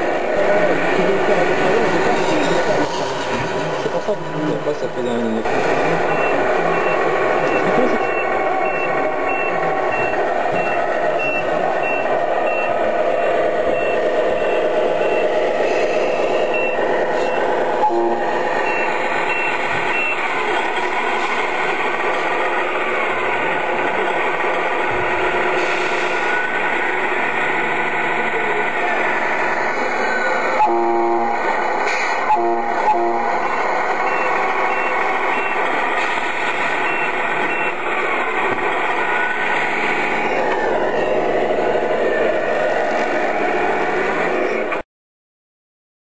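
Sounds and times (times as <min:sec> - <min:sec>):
steady background noise: 0:00.0 - 0:44.8
electronic reversing beeps: 0:05.1 - 0:23.0, 0:29.7 - 0:42.6.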